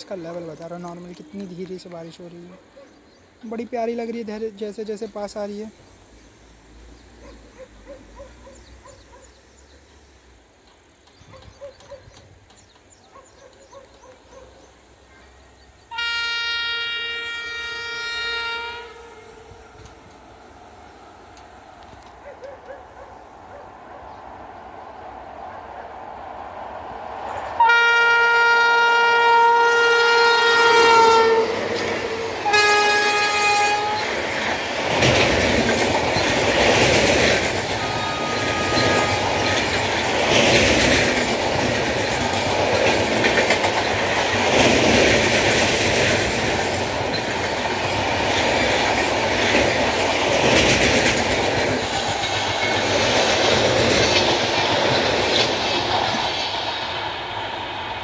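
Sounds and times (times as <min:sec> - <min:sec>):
train coaches rumbling: 0:00.0 - 0:58.0
wheels clickety-clack: 0:10.6 - 0:14.4, 0:34.3 - 0:56.8
locomotive horn blasts: 0:15.9 - 0:19.6, 0:27.6 - 0:31.6, 0:32.2 - 0:34.1, 0:37.8 - 0:39.6.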